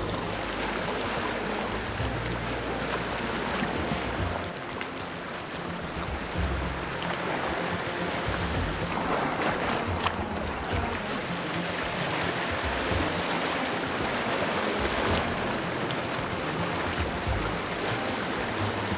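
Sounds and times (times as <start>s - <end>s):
low rumbling: 0.0s - 12.0s
surf washing against rocks: 0.0s - 18.9s.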